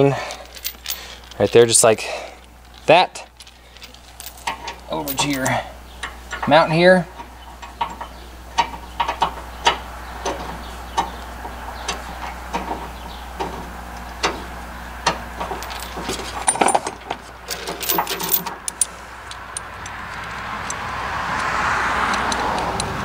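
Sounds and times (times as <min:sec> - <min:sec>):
metal chain clinking: 0:00.0 - 0:01.8, 0:02.4 - 0:05.7, 0:15.4 - 0:20.3.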